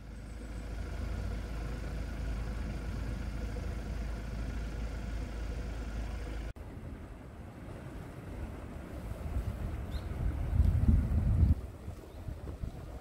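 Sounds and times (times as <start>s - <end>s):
wind buffeting microphone: 6.6s - 13.0s.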